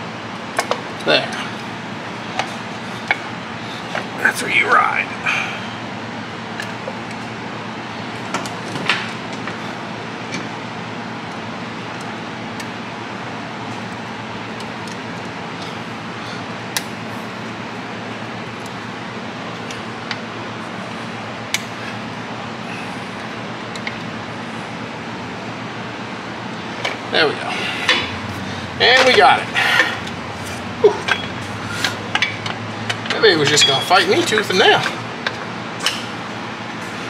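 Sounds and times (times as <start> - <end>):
steady background noise: 0.0 - 37.0.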